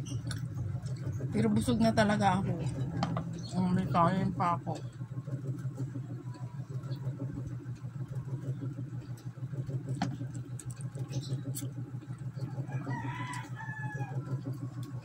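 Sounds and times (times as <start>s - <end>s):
chewing food: 0.0s - 1.3s, 5.1s - 15.0s
steady low hum: 0.0s - 15.0s.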